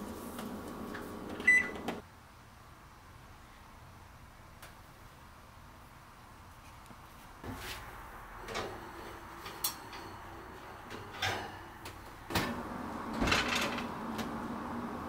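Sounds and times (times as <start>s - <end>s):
oven door opening: 0.4s - 2.0s, 8.4s - 15.0s.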